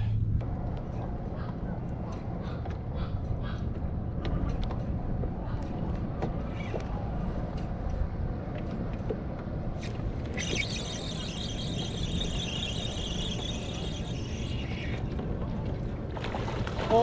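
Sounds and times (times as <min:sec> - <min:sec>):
low wind: 0:00.0 - 0:17.0
water noise: 0:08.6 - 0:17.0
fishing reel drag screaming: 0:10.3 - 0:15.1.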